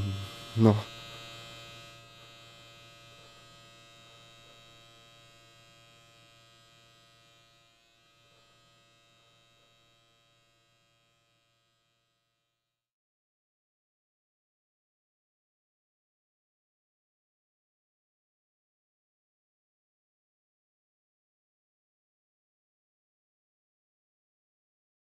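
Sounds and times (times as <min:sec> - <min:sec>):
electric shaver buzzing: 0:00.0 - 0:12.6.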